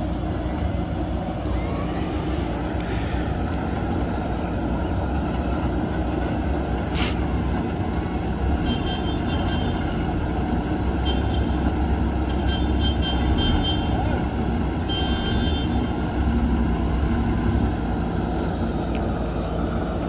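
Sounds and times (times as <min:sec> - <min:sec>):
diesel engine running: 0:00.0 - 0:20.0
truck diesel idling: 0:00.0 - 0:20.0.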